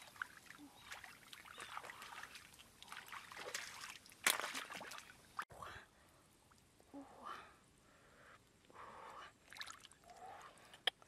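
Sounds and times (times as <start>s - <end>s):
sharp splash: 0.0s - 5.1s
hands sloshing in muddy water: 0.0s - 5.2s.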